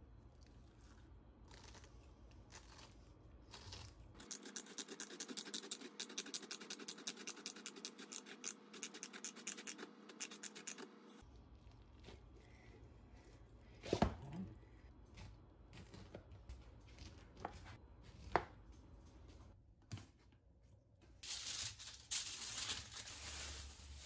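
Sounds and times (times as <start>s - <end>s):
rustling and crinkling: 21.2s - 24.0s.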